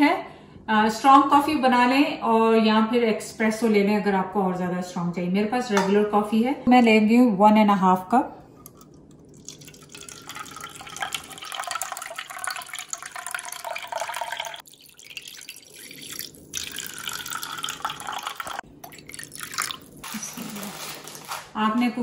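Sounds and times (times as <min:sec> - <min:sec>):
coffee pouring into plastic cup: 0:08.6 - 0:20.2.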